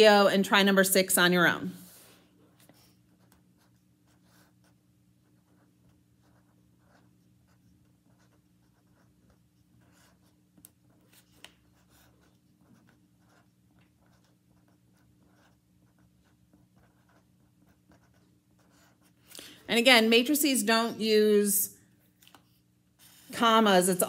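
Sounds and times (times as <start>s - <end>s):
marker scratching on paper: 1.9s - 19.3s, 22.3s - 24.0s.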